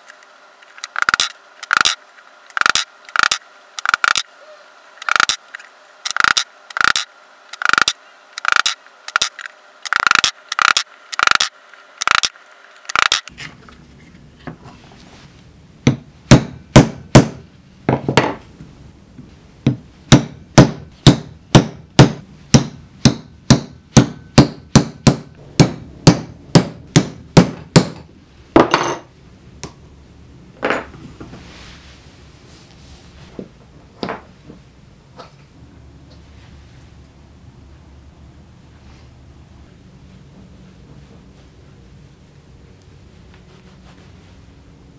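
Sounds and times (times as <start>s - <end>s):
punch striking leather on metal: 15.9s - 17.4s, 19.7s - 28.0s.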